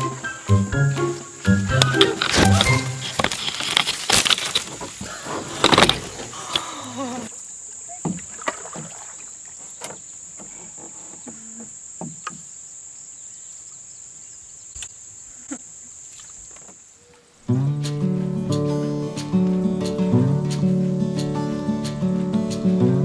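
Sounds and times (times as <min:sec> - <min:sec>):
insect drone: 0:00.0 - 0:23.0
branches rustling and snapping: 0:01.7 - 0:06.9.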